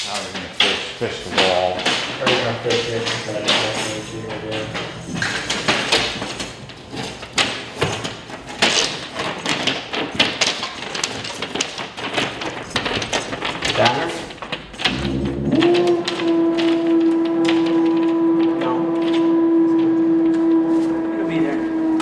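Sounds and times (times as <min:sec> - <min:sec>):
low voices: 0:00.1 - 0:05.7, 0:14.8 - 0:22.0.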